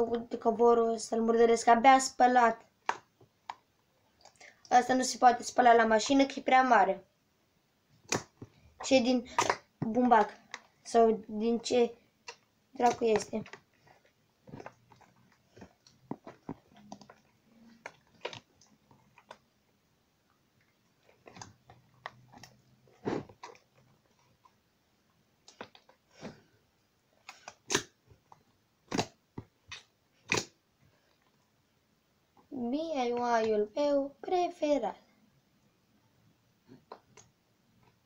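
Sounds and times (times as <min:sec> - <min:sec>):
slime squelching and popping: 0:08.0 - 0:11.0, 0:12.2 - 0:19.6, 0:20.7 - 0:24.6, 0:27.2 - 0:30.6.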